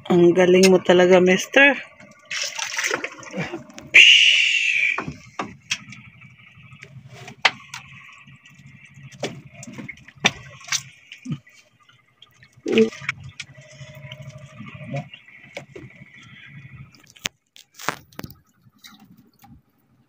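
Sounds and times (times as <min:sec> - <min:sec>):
water gushing: 0:01.6 - 0:19.1.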